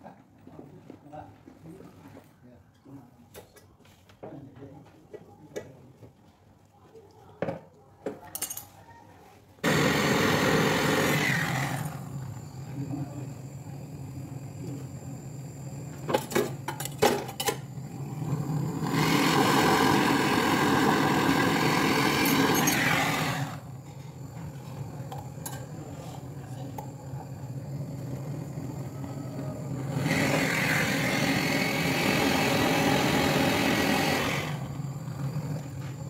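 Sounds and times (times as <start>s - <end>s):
steady low hum: 11.6s - 19.0s.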